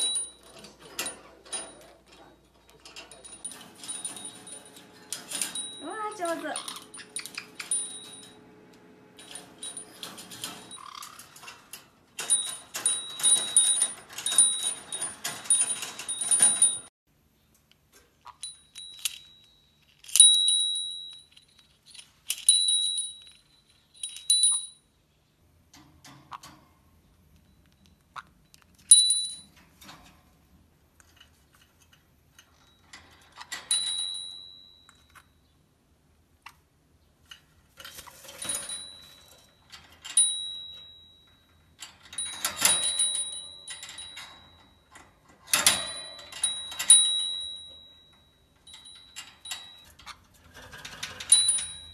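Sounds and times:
small bell dinging: 3.1s - 8.4s, 18.3s - 21.6s, 22.5s - 25.0s, 28.9s - 29.6s, 33.7s - 35.5s, 38.4s - 50.1s, 51.2s - 51.9s.

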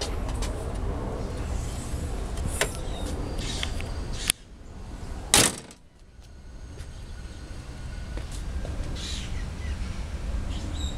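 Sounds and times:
steady low rumble: 0.0s - 10.9s
car hood slamming shut: 5.4s - 5.8s.

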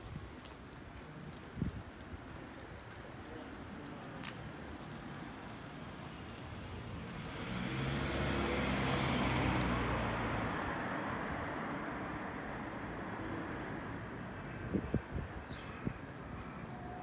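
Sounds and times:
traffic background: 0.0s - 17.0s
vehicle passing by: 6.8s - 14.0s.

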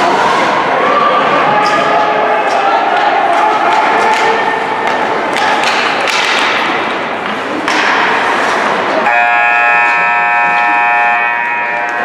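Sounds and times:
crowd voices: 0.0s - 12.0s
hockey sticks and puck clacking: 1.6s - 12.0s
arena horn: 9.0s - 12.0s.

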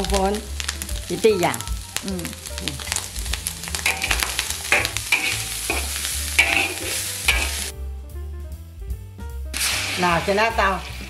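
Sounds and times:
food sizzling in hot pan: 0.0s - 7.7s, 9.5s - 11.0s
spatula scraping pan: 3.8s - 7.7s.

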